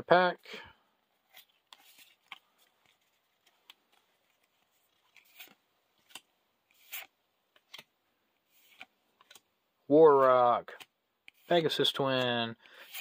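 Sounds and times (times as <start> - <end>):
cards sliding off a stack: 1.3 - 7.9, 8.5 - 9.4, 12.2 - 13.0.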